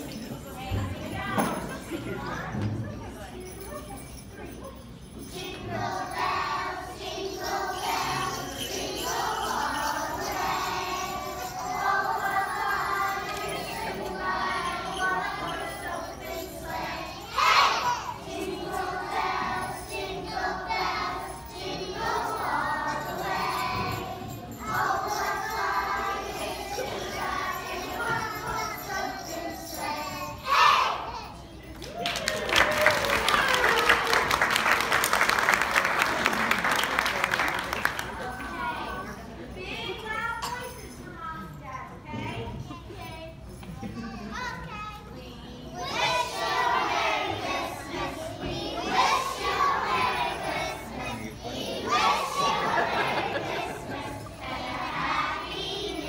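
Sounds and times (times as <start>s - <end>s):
small bells shaking: 0.0s - 56.0s
children's choir singing: 5.1s - 31.4s, 45.3s - 56.0s.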